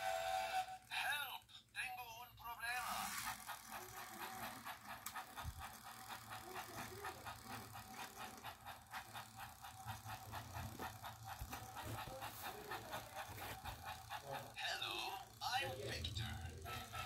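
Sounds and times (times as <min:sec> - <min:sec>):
toy train motor whirring: 0:00.0 - 0:01.4, 0:02.5 - 0:17.0
clicking of gears and wheels: 0:02.9 - 0:14.6.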